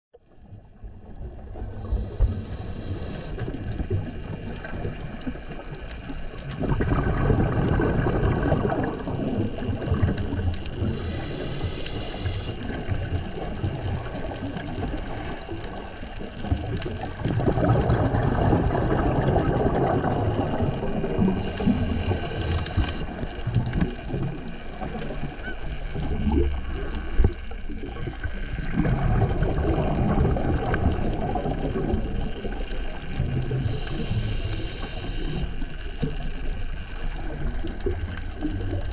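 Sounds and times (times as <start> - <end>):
exhaled bubbles rushing: 0.4 - 38.9
regulator inhalation hiss: 1.9 - 3.5, 10.8 - 12.7, 21.2 - 23.1, 33.6 - 35.6.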